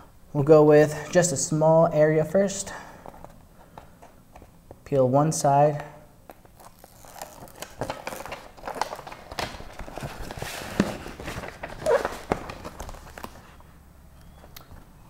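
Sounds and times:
paper backing peeling and rustling: 6.3 - 13.6.

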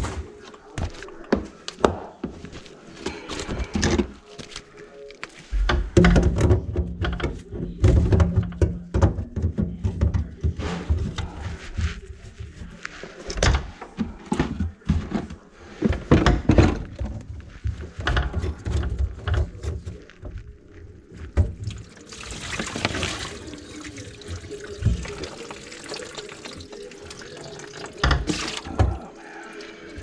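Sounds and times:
plastic bucket set down: 21.4 - 25.5
water pouring into a bucket: 21.6 - 30.0.

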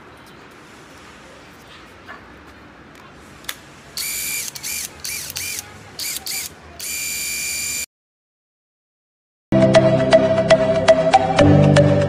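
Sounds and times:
impact wrench motor bursts: 4.0 - 7.9.

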